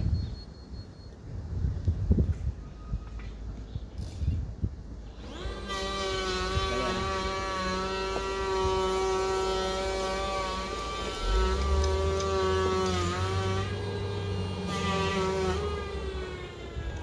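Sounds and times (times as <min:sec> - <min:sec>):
power tool motor spinning: 0:05.1 - 0:17.0.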